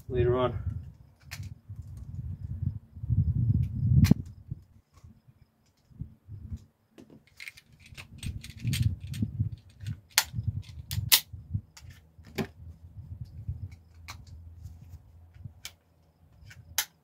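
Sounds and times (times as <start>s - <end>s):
cartridges clicking into magazine: 16.4s - 17.0s.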